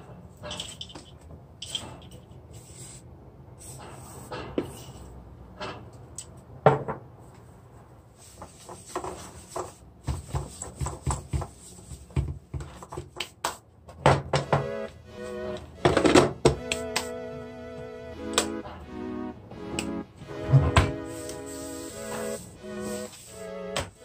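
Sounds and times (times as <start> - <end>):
cloth wiping plastic: 21.0 - 24.0.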